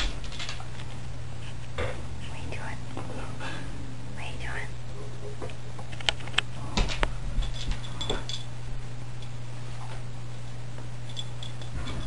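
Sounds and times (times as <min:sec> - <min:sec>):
dog claws clicking on floor: 0:00.0 - 0:01.0, 0:05.9 - 0:08.5
steady low hum: 0:00.0 - 0:12.0.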